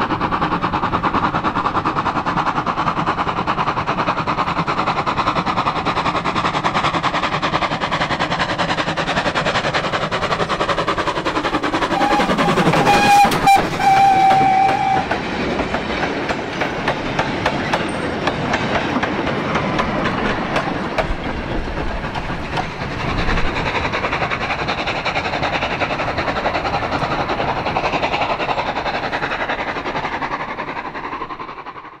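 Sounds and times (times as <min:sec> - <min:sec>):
steam locomotive exhaust beats: 0:00.0 - 0:32.0
steam locomotive whistle: 0:11.9 - 0:15.2.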